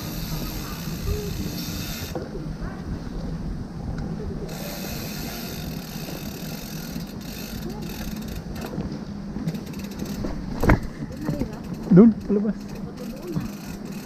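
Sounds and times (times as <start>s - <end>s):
bicycle freewheel ticking: 0.0s - 2.2s, 4.5s - 8.8s, 9.4s - 14.0s.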